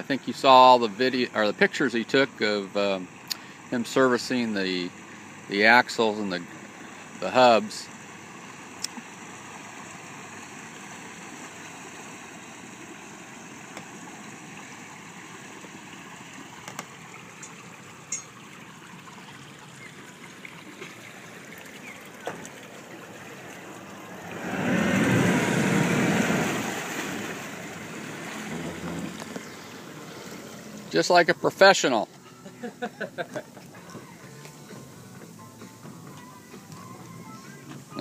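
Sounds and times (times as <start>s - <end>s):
churning water rush: 0.0s - 38.0s
outboard motors running: 0.0s - 38.0s
water lapping: 6.1s - 34.9s.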